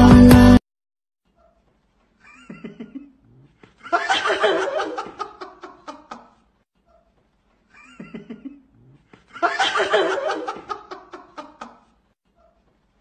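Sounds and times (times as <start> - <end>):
person laughing: 2.2 - 6.4.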